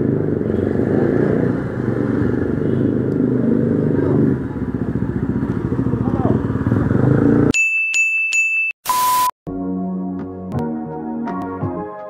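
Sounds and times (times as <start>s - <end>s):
motorcycle engine running: 0.0s - 7.5s.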